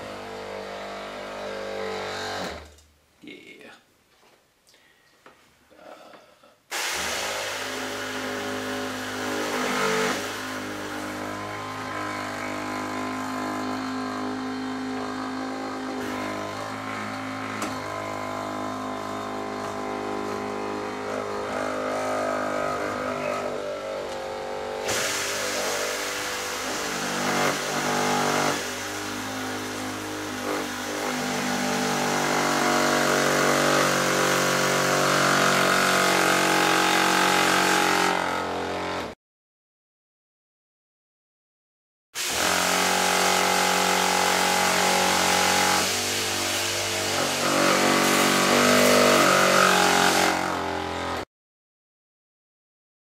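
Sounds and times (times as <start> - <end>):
electric pump humming: 6.7 - 31.4, 42.2 - 51.1.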